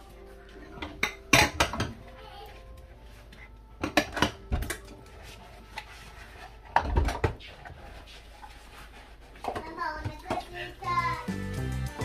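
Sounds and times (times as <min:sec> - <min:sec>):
dishes clattering in a steel sink: 0:00.7 - 0:02.0, 0:03.8 - 0:05.0, 0:06.7 - 0:07.4.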